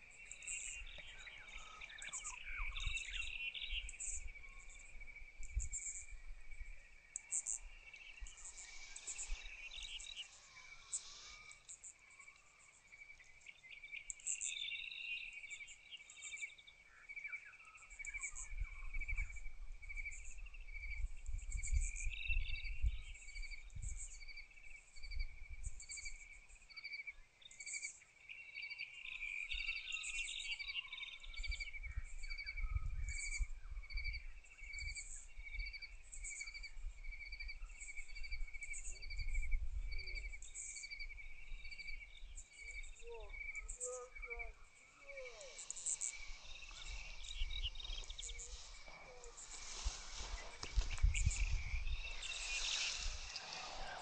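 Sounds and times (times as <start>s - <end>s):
wind rumble on microphone: 0.0s - 6.9s, 18.0s - 26.3s, 31.2s - 54.0s
insects chirping: 0.0s - 54.0s.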